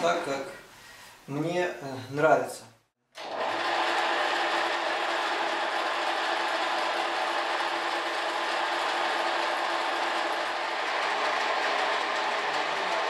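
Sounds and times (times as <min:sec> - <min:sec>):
gear whine: 0:03.2 - 0:13.0
lathe whirring: 0:03.2 - 0:13.0.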